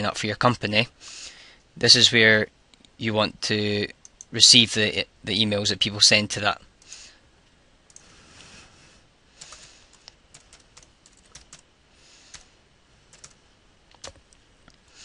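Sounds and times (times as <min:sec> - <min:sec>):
typing on a keyboard: 0:10.4 - 0:11.6, 0:13.1 - 0:14.2.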